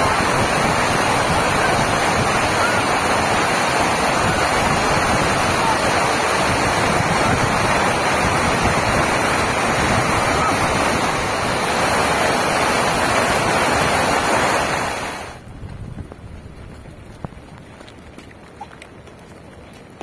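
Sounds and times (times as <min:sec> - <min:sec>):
floodwater rushing: 0:00.0 - 0:15.5.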